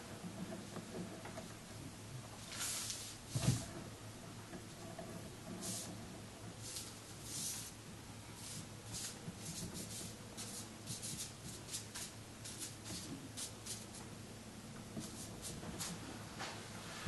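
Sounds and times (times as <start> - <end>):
low steady hum: 0.0 - 17.0
ink brush swishing on paper: 5.6 - 6.0, 6.6 - 7.8, 8.4 - 14.0, 15.0 - 16.1.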